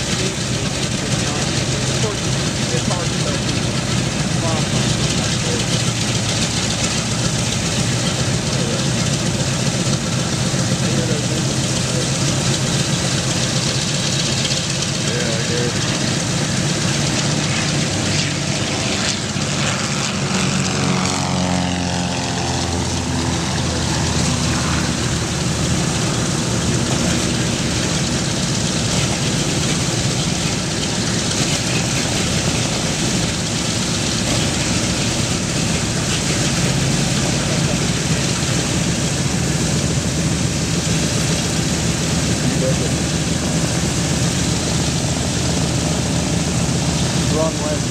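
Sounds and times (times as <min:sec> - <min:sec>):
light aircraft passing overhead: 0:00.0 - 0:47.9
radial aircraft engines idling: 0:00.0 - 0:47.9.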